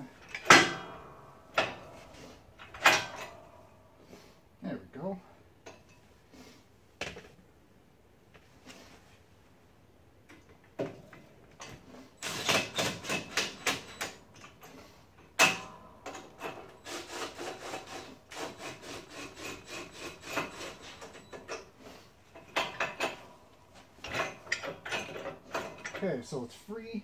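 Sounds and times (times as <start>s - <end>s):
metal parts scraping: 12.2s - 23.2s.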